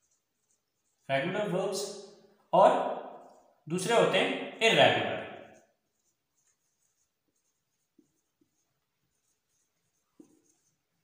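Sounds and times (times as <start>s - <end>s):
marker squeaking on whiteboard: 0.0s - 1.2s, 5.2s - 11.0s.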